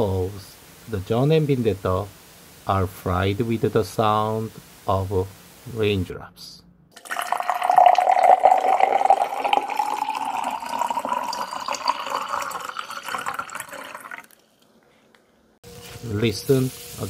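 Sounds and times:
liquid pouring into metal bowl: 0:07.0 - 0:14.4.

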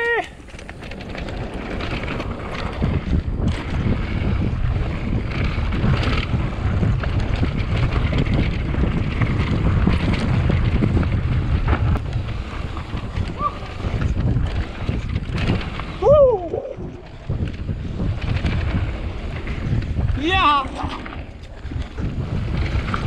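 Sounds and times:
bike rattling over bumps: 0:00.0 - 0:23.0
wind buffeting microphone: 0:00.0 - 0:23.0.

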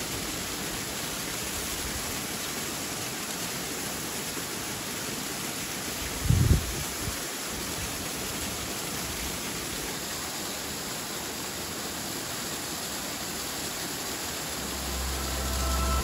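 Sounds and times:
waterfall rushing: 0:09.6 - 0:16.0.

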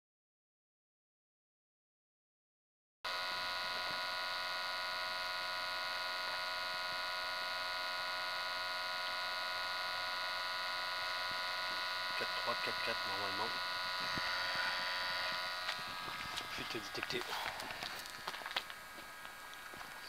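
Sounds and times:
electric buzzing hum with whine: 0:03.1 - 0:20.0.

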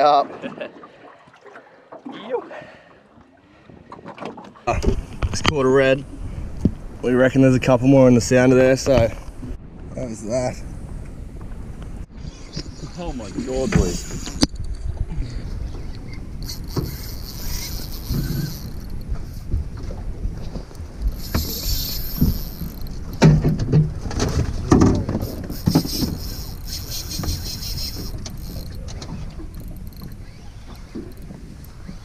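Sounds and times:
wind rumble on microphone: 0:04.7 - 0:32.0
spinning reel winding: 0:16.4 - 0:19.1, 0:21.1 - 0:23.2, 0:25.2 - 0:28.8, 0:29.5 - 0:31.3.

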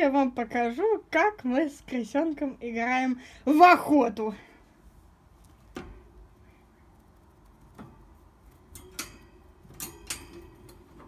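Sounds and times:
stick rattling cage wire bars: 0:07.0 - 0:11.0.

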